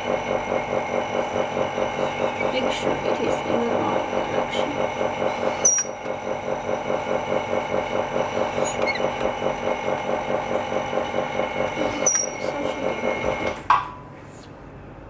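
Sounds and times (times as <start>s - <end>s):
small pump motor pulsing: 0.0s - 13.7s
high squeak: 5.5s - 6.0s, 8.6s - 9.1s, 11.9s - 12.4s.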